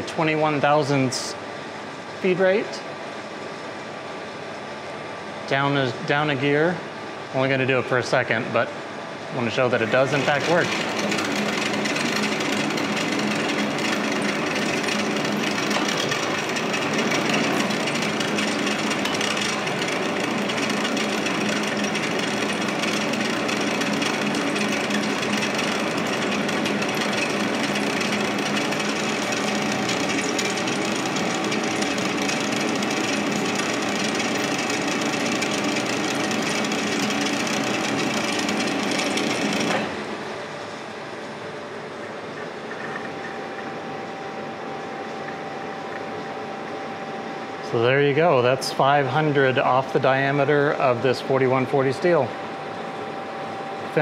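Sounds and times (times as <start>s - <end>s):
machine hum: 0.0s - 54.0s
lathe tool cutting metal: 9.6s - 40.3s.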